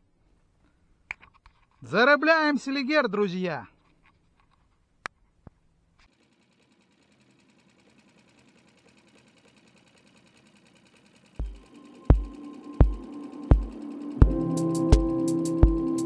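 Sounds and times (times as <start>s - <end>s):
rapid even ticking: 6.1s - 16.0s
heavy deep drum beat: 11.4s - 16.0s.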